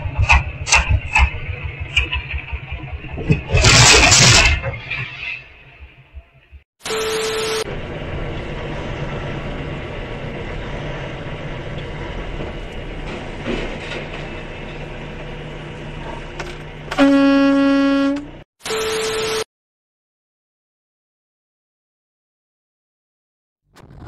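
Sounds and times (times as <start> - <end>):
traffic noise with engine hum: 7.7 - 18.4
vehicle horn: 16.9 - 18.4
static noise glitch: 23.8 - 24.0.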